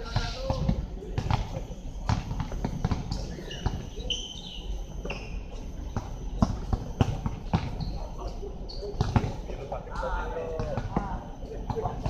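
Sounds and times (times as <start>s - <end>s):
basketball bouncing on hard court: 2.1s - 3.8s, 6.0s - 7.9s, 9.0s - 9.4s.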